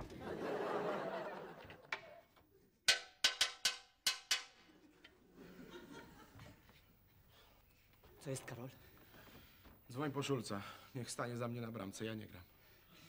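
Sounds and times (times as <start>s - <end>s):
studio audience laughing: 0.0s - 2.2s, 5.3s - 6.6s.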